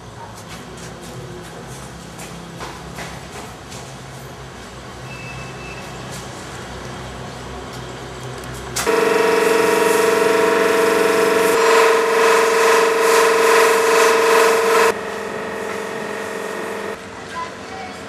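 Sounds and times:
steady horn-like tone: 0:08.8 - 0:17.0
low hum: 0:08.9 - 0:17.0.

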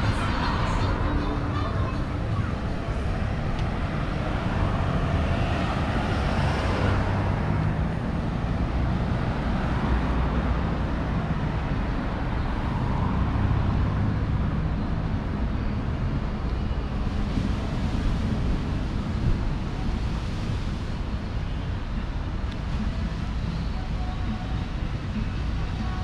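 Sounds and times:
vehicle passing: 0:00.0 - 0:16.0
road traffic rumble: 0:00.0 - 0:26.0.

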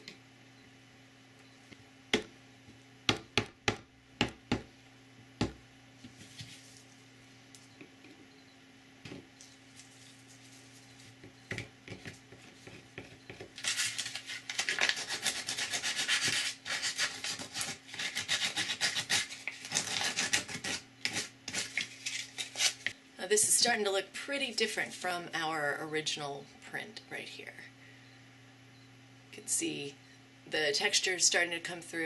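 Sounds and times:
sandpaper rubbing plastic: 0:13.6 - 0:22.9.

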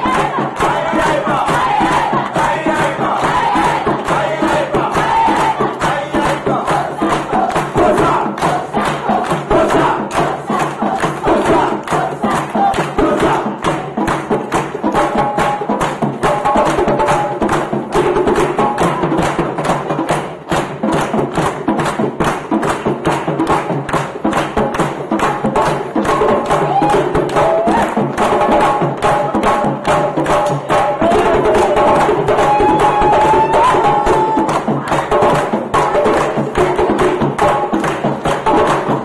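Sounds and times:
boys chanting and singing: 0:00.0 - 0:15.6, 0:25.2 - 0:39.0
percussion ensemble playing: 0:00.0 - 0:39.0.

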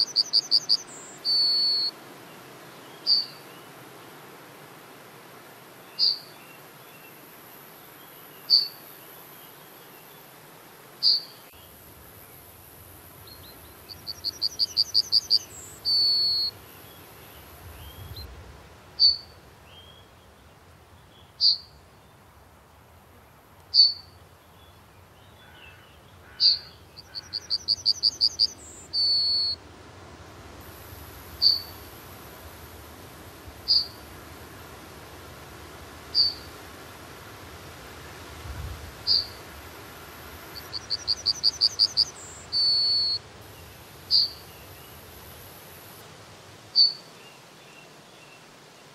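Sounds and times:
bird song: 0:00.0 - 0:03.7, 0:05.8 - 0:10.3, 0:11.0 - 0:12.4, 0:13.2 - 0:18.3, 0:19.0 - 0:22.2, 0:23.7 - 0:29.6, 0:31.4 - 0:31.9, 0:33.7 - 0:34.0, 0:36.1 - 0:36.5, 0:39.1 - 0:39.4, 0:40.5 - 0:45.1, 0:46.8 - 0:48.9
short sharp bird calls: 0:25.4 - 0:29.6, 0:33.7 - 0:34.0, 0:36.1 - 0:36.5, 0:44.1 - 0:44.4.

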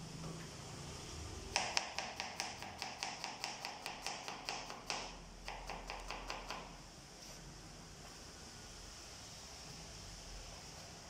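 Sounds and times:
knife chopping on plastic board: 0:01.6 - 0:06.6.

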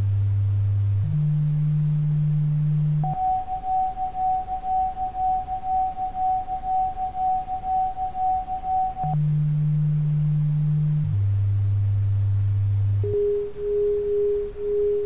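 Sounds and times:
low steady tone: 0:00.0 - 0:15.0
pulsing electronic tone: 0:01.0 - 0:09.9, 0:13.0 - 0:15.0.

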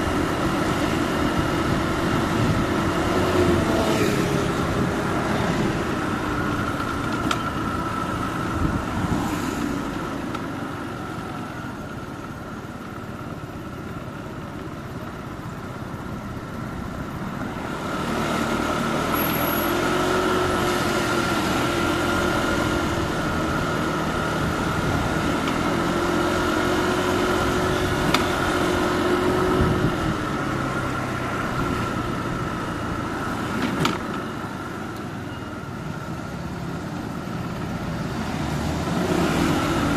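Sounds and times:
wind noise: 0:00.0 - 0:09.9, 0:27.2 - 0:30.8
road noise: 0:00.0 - 0:39.9.

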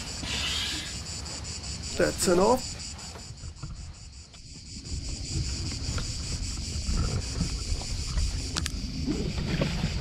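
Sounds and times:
insects droning: 0:00.0 - 0:10.0
wind rumbling on microphone: 0:02.7 - 0:10.0.

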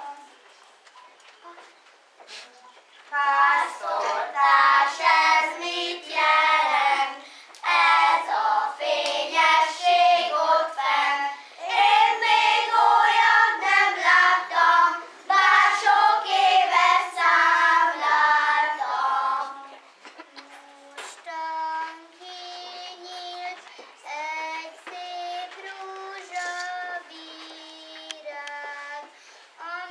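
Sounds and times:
children singing: 0:03.1 - 0:19.8.

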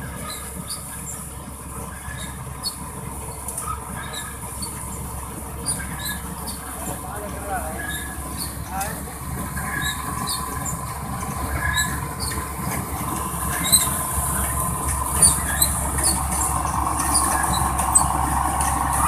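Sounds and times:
combine harvester droning: 0:00.0 - 0:19.0
short high squeaks: 0:03.4 - 0:05.0, 0:05.6 - 0:06.7, 0:07.7 - 0:08.7, 0:09.5 - 0:19.0.

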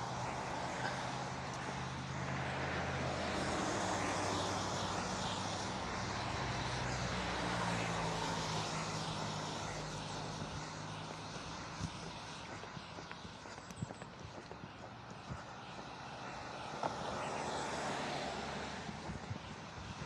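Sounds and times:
low engine drone: 0:00.0 - 0:12.7.

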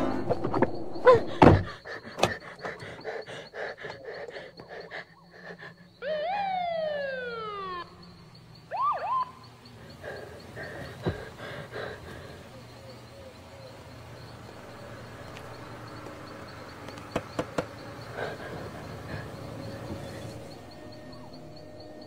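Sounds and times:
heavy thumps: 0:00.0 - 0:02.4
police siren wail: 0:02.1 - 0:22.0
siren whoop: 0:06.0 - 0:09.7.

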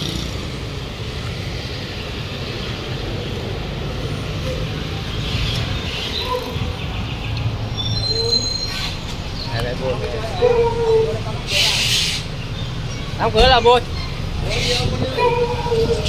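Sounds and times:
street traffic engine hum: 0:00.0 - 0:16.0.

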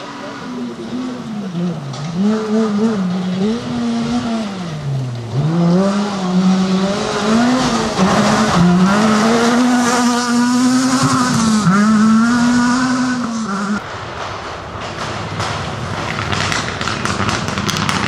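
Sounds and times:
rally car engine revving: 0:00.0 - 0:13.8.

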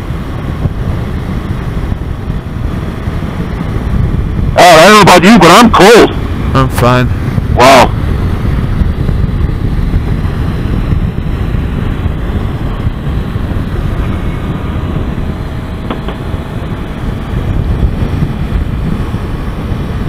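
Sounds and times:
wind rushing over microphone: 0:00.0 - 0:20.0
motorcycle engine running: 0:06.1 - 0:20.0.

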